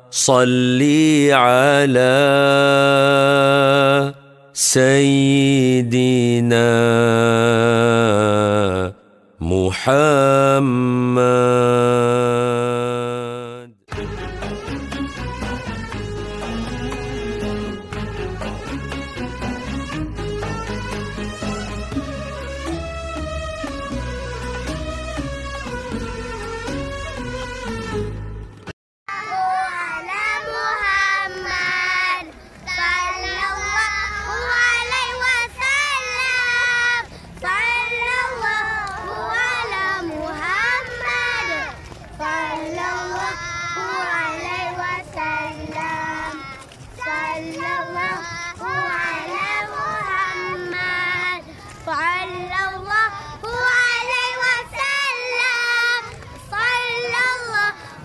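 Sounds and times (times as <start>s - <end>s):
children singing in unison: 16.2s - 18.2s, 29.1s - 57.8s.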